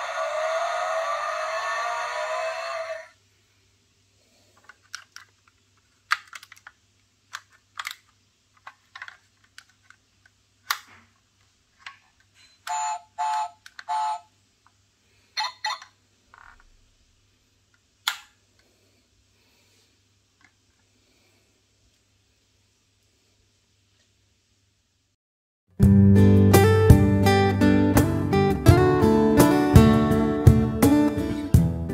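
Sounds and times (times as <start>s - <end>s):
toy truck squeaks: 12.4s - 14.3s.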